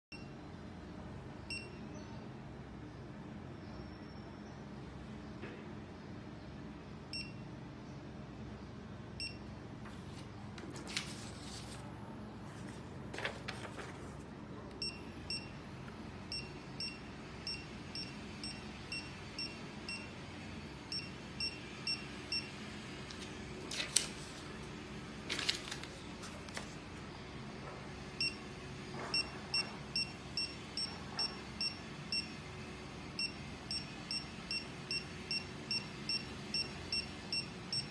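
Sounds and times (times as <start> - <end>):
paper rustling: 9.8 - 14.3, 23.1 - 27.0
barcode scanner high beeps: 14.8 - 15.6, 16.3 - 20.1, 20.9 - 22.5, 28.2 - 28.4, 29.1 - 32.4, 33.2 - 37.9.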